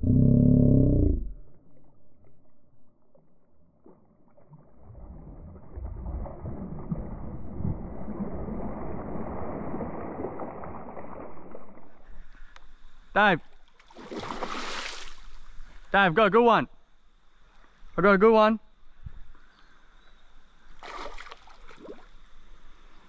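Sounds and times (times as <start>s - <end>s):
fish splashing in water: 13.8s - 15.3s, 20.8s - 22.1s.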